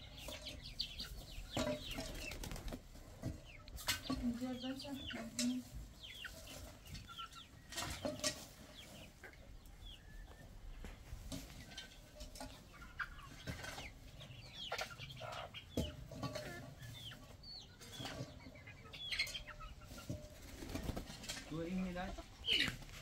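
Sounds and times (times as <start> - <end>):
young chickens clucking: 0.0 - 23.0
knocks and scrapes: 6.2 - 9.1, 10.8 - 14.0, 15.7 - 17.1.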